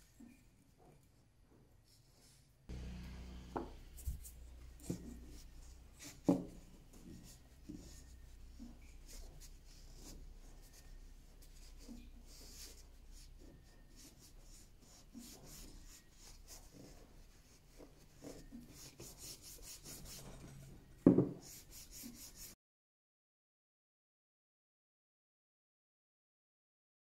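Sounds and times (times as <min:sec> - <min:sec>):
cloth rubbing wood: 0:02.7 - 0:22.5
knock: 0:21.0 - 0:21.4.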